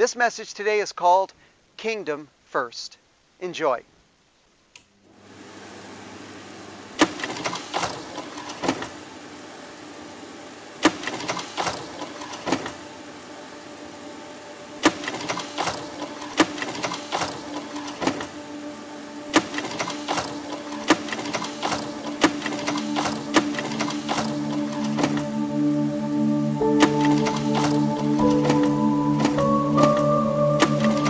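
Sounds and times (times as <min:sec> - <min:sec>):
sharp mechanical clicks: 0:07.0 - 0:08.8, 0:10.8 - 0:12.7, 0:14.8 - 0:18.3, 0:19.3 - 0:25.2, 0:26.8 - 0:28.6
sustained music tone: 0:12.8 - 0:31.0.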